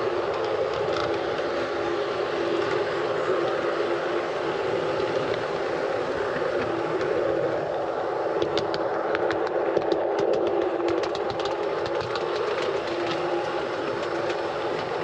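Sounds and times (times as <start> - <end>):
model train running on track: 0.0 - 15.0.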